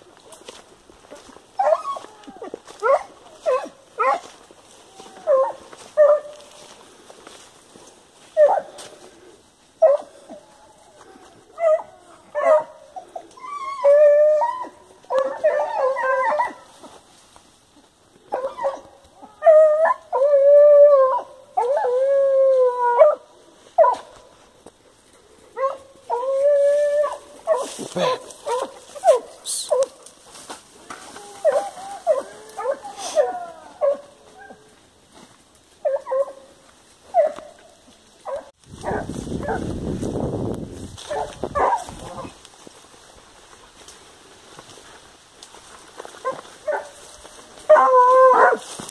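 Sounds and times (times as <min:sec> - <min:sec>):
dog barking: 0:02.8 - 0:04.3, 0:05.3 - 0:06.4, 0:08.4 - 0:08.8, 0:09.8 - 0:10.2, 0:11.6 - 0:12.9, 0:15.1 - 0:16.6, 0:18.3 - 0:20.0, 0:22.9 - 0:24.2, 0:25.6 - 0:25.9, 0:27.0 - 0:30.0, 0:33.8 - 0:34.6, 0:35.9 - 0:36.5, 0:37.1 - 0:37.6, 0:38.2 - 0:39.6, 0:41.1 - 0:42.2, 0:46.2 - 0:47.0, 0:47.7 - 0:48.7
dog howling: 0:04.9 - 0:06.2, 0:09.8 - 0:16.6, 0:18.3 - 0:24.0, 0:25.6 - 0:29.8, 0:31.1 - 0:34.7, 0:47.7 - 0:48.6.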